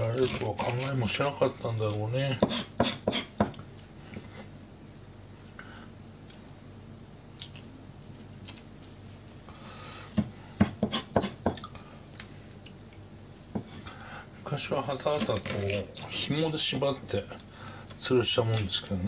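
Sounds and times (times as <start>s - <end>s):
knife scraping fish flesh: 0.0s - 1.1s, 2.4s - 3.3s.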